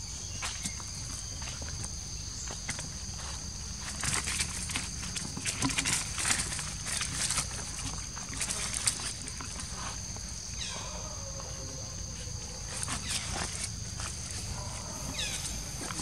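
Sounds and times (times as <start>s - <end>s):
high insect drone: 0.0s - 16.0s
monkeys scuffling in dry leaves: 2.7s - 16.0s.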